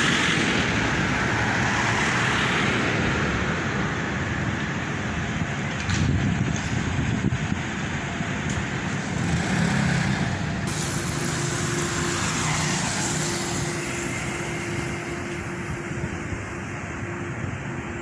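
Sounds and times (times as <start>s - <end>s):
tyres on road: 0.0s - 18.0s
vehicle engines running: 0.0s - 18.0s
vehicle passing by: 9.0s - 15.7s.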